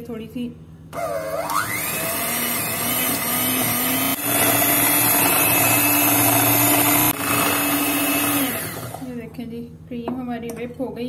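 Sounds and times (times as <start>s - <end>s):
electric hand mixer running: 1.0s - 9.2s.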